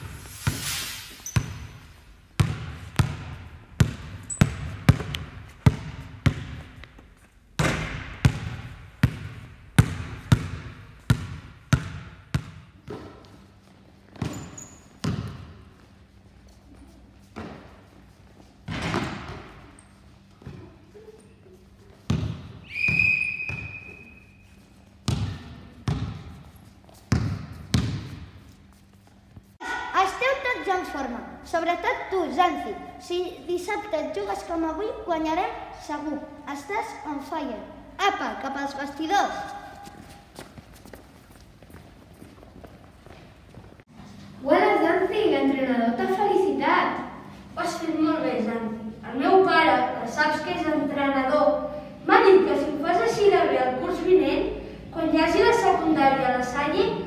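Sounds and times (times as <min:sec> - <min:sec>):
basketball bouncing on gym floor: 0:01.2 - 0:01.8, 0:02.4 - 0:13.4, 0:14.1 - 0:15.9, 0:18.7 - 0:19.8, 0:20.4 - 0:20.8, 0:22.1 - 0:24.1, 0:25.0 - 0:28.5.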